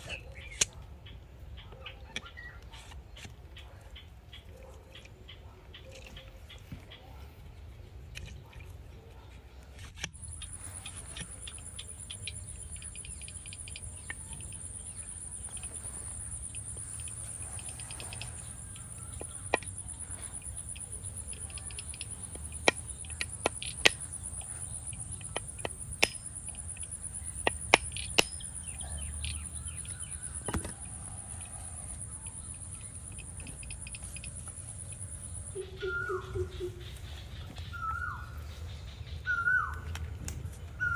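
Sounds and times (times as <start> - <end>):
insect high-pitched trill: 10.1 - 39.8.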